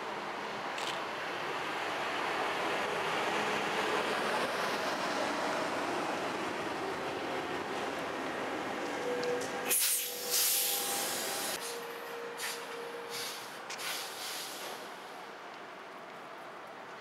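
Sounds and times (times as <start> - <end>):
tram rumbling on rails: 0.0 - 17.0
loud hissing: 13.1 - 14.8.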